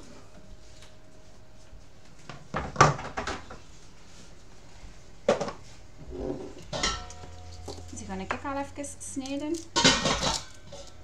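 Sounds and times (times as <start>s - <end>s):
cookware and utensils clanking: 6.2s - 11.0s.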